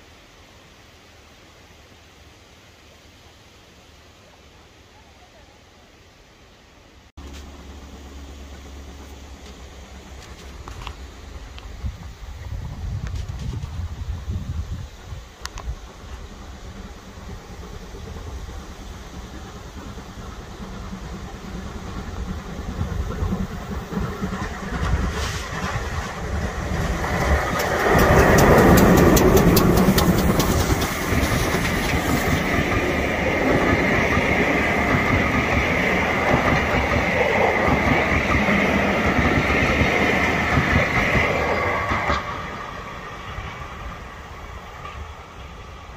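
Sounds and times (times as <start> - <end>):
steam locomotive passing: 0.0 - 45.9
train wheels clattering over rail joints: 15.9 - 43.6.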